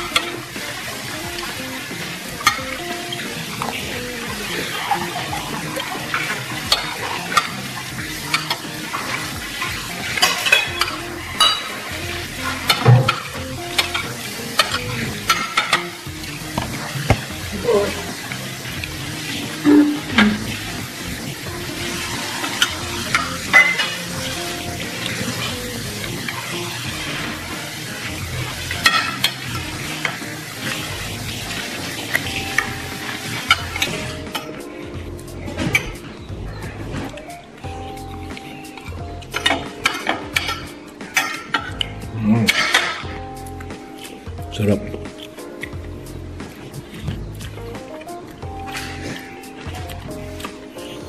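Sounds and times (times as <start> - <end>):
eating and chewing: 0.0 - 51.0
cutlery clinks: 10.2 - 11.8.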